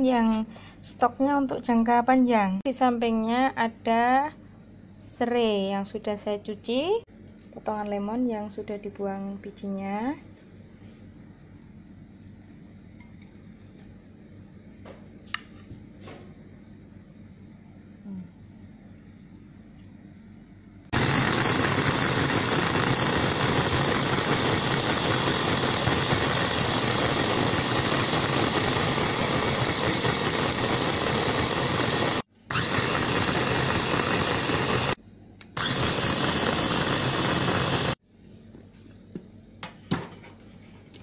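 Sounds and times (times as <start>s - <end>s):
electric food chopper running: 21.0s - 38.0s.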